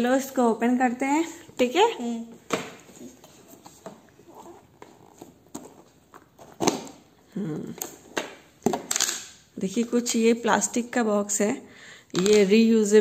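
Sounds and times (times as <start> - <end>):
plastic box clicks and knocks: 7.8 - 9.2.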